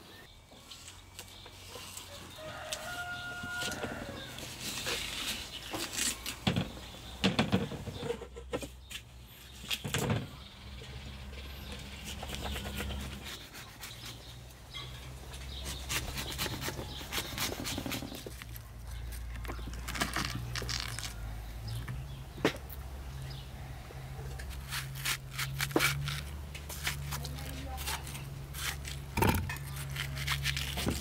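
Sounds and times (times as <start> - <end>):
knife cutting through watermelon: 12.0 - 14.3, 15.6 - 21.2, 24.4 - 31.0.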